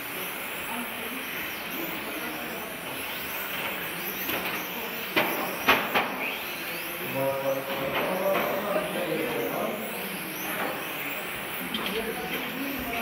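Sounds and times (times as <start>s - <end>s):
rc cars whining: 0.0s - 13.0s.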